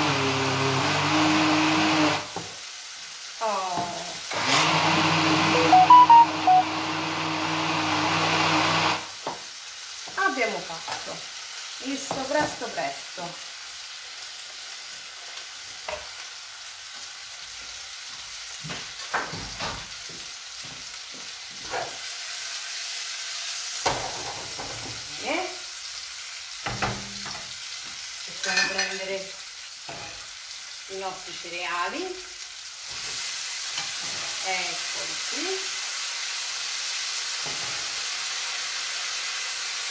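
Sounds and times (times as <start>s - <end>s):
blender motor running: 0.0s - 2.4s, 4.3s - 9.2s
food sizzling in a pan: 0.0s - 39.9s.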